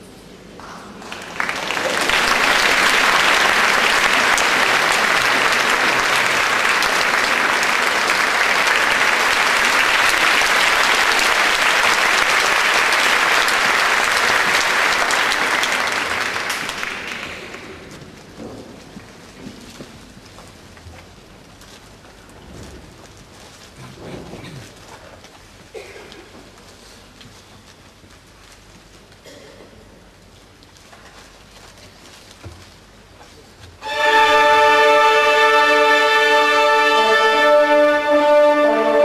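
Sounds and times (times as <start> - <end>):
audience applauding: 0.9 - 17.9.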